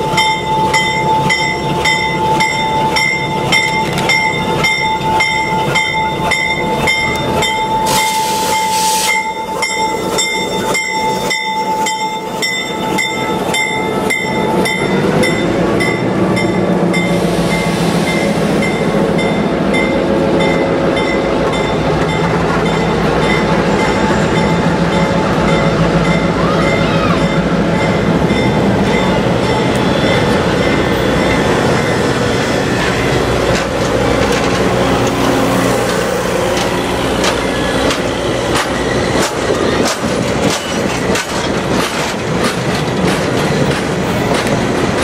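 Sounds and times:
bell ringing: 0:00.0 - 0:17.2
diesel locomotive engine rumble: 0:00.0 - 0:45.0.

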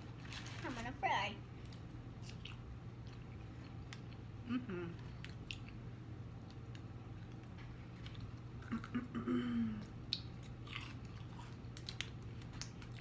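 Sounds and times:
people chewing food: 0:01.6 - 0:13.0
person humming: 0:04.4 - 0:05.0.

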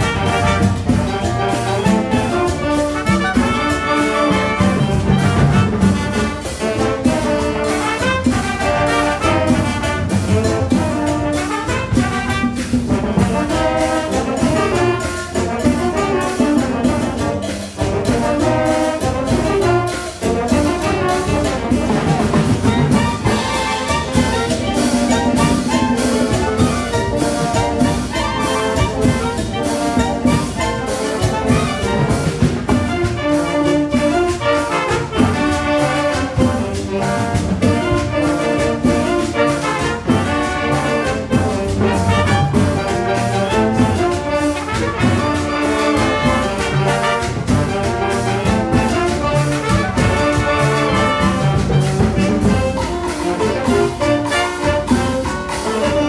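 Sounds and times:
brass playing tune: 0:00.0 - 0:56.0
clarinets and saxophones: 0:00.0 - 0:56.0
latin percussion beat: 0:00.0 - 0:56.0.

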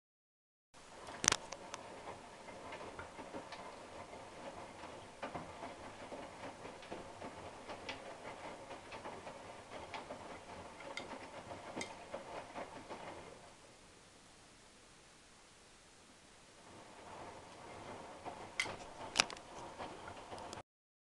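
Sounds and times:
faint steady hum: 0:00.8 - 0:20.6
washing machine drum tumbling: 0:00.9 - 0:13.6, 0:16.6 - 0:20.6.

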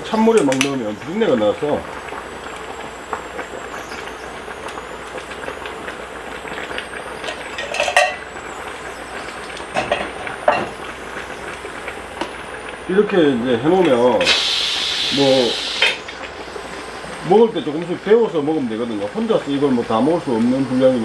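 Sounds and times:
stew boiling and bubbling: 0:00.0 - 0:21.0
metal can clinking against pot: 0:07.3 - 0:08.3.

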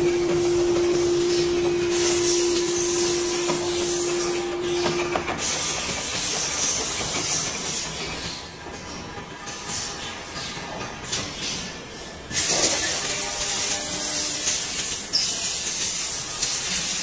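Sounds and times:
steady machine hum: 0:00.0 - 0:07.8
steady machinery hiss: 0:00.0 - 0:17.0.

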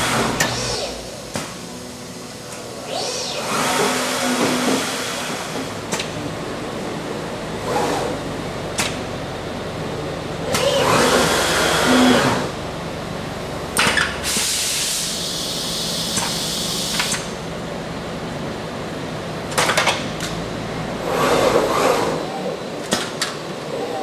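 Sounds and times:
pneumatic hiss: 0:00.0 - 0:01.7, 0:10.5 - 0:12.1, 0:13.8 - 0:17.4
machine hum: 0:00.0 - 0:24.0.

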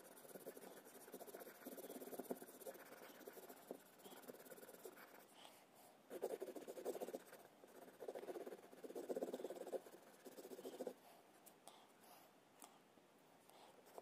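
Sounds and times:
pencil scratching on paper: 0:00.0 - 0:05.3, 0:06.1 - 0:11.0.

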